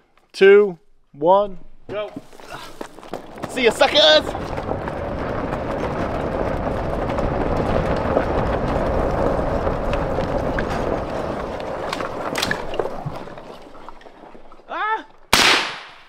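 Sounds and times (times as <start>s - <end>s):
running footsteps on gravel: 2.0s - 14.7s
wind rumble on microphone: 3.2s - 14.0s.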